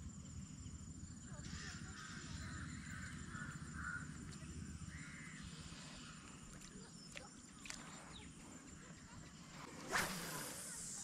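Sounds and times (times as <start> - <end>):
crow cawing: 1.6 - 4.2.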